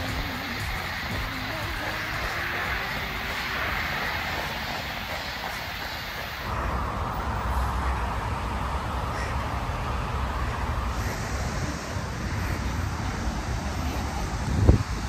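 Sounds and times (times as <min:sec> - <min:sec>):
cicadas droning: 0:00.0 - 0:15.0
wind rumble on microphone: 0:11.4 - 0:15.0.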